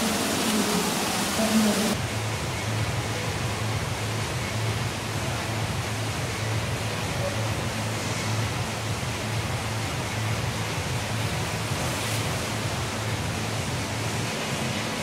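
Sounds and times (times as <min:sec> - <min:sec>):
flowing water rushing: 0:00.0 - 0:15.0.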